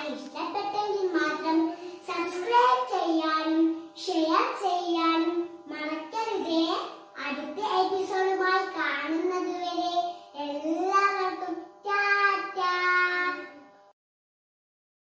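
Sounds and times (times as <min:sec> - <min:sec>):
girl singing in high voice: 0:05.1 - 0:13.7.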